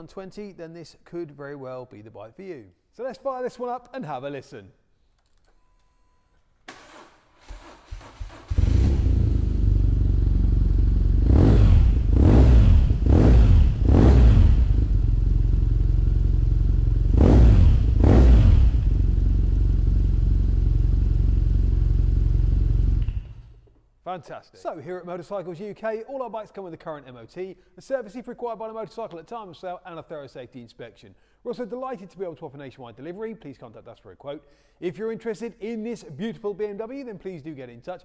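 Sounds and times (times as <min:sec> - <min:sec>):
motorcycle engine starting and idling: 0:06.7 - 0:23.7.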